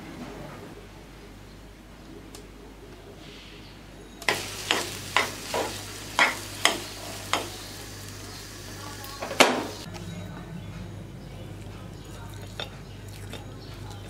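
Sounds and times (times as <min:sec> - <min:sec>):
spoon scraping a pan: 0:04.2 - 0:09.9.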